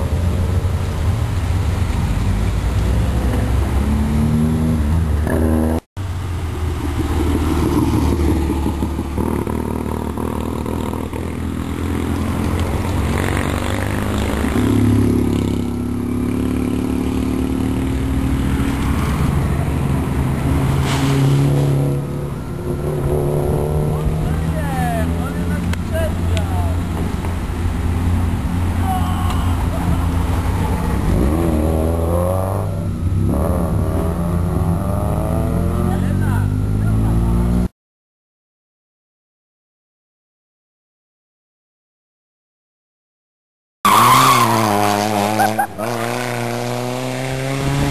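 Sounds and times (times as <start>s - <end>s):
rally car engines revving: 6.4s - 37.7s, 43.9s - 47.9s.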